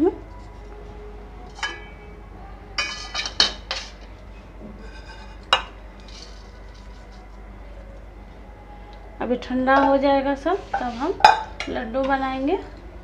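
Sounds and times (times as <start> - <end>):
pan and spatula clinking on plate: 2.8 - 4.0
scraping out of pan: 2.8 - 4.0, 4.8 - 7.3.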